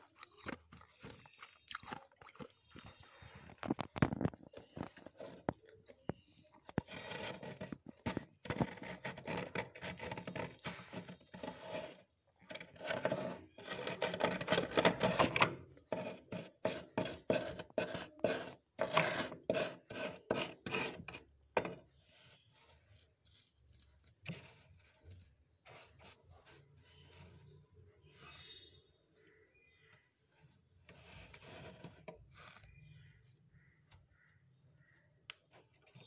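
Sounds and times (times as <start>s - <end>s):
freezer frost being scraped: 6.7s - 29.5s, 30.6s - 35.0s.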